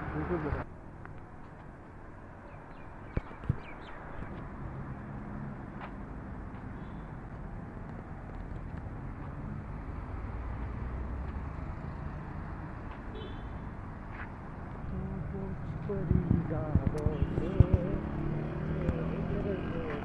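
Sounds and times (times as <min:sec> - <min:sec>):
traffic hum: 0:00.0 - 0:20.0.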